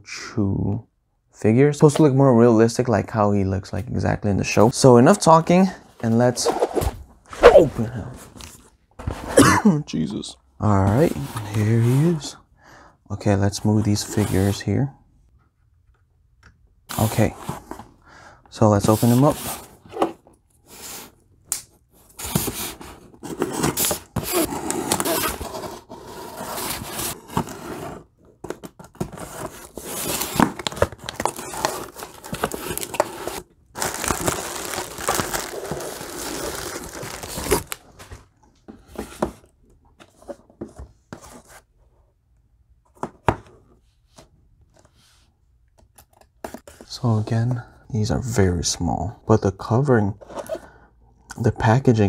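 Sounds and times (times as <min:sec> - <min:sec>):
handling of boxes: 0:05.2 - 0:09.4, 0:10.8 - 0:12.4, 0:16.9 - 0:18.0, 0:18.8 - 0:21.2, 0:21.9 - 0:41.9
packing tape tearing: 0:30.0 - 0:37.8
bubble wrap crinkling: 0:30.6 - 0:38.0.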